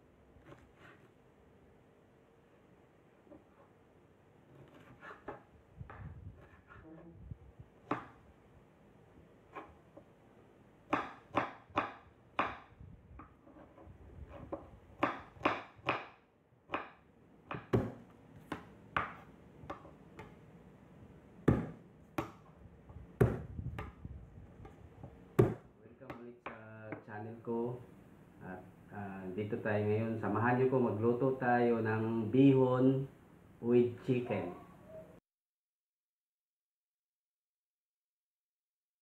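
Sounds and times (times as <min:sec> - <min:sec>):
knife chopping on wooden board: 0:04.5 - 0:06.8, 0:07.8 - 0:08.2, 0:10.9 - 0:20.4, 0:21.4 - 0:22.5, 0:23.2 - 0:24.0, 0:25.0 - 0:26.2.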